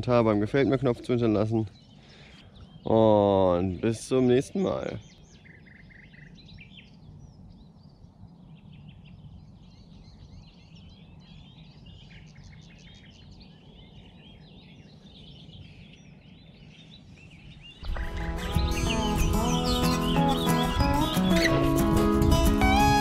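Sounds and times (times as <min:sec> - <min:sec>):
small birds chirping and singing: 0:00.0 - 0:23.0
low background rumble: 0:05.0 - 0:19.9.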